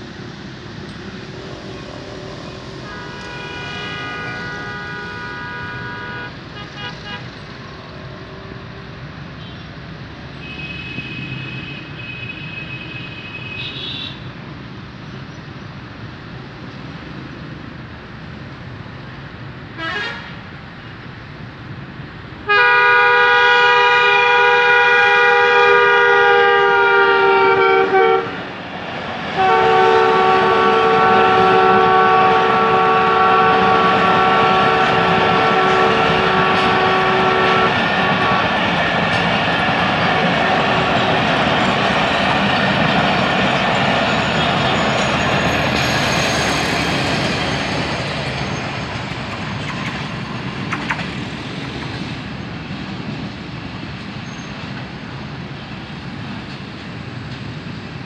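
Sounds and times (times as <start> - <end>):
steady background noise: 0.0 - 22.5, 30.1 - 58.0
locomotive horn blasts: 2.8 - 7.4, 10.4 - 14.2, 19.8 - 20.4, 22.5 - 28.4, 29.4 - 38.6.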